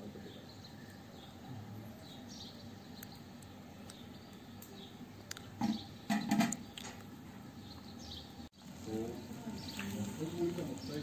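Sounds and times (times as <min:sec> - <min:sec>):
faint small birds chirping: 0:00.0 - 0:11.0
knocks and clatters: 0:05.6 - 0:07.0.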